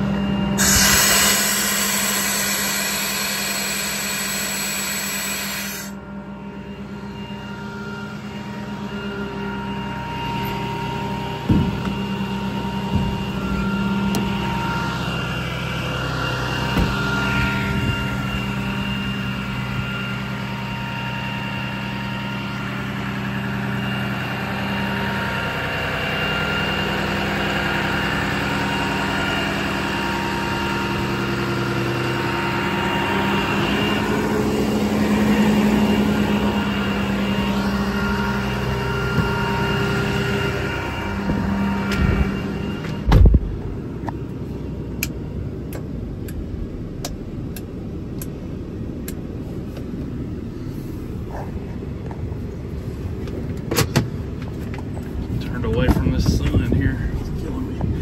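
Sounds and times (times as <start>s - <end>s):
diesel engine idling: 0.0s - 58.0s
hiss: 0.6s - 5.9s.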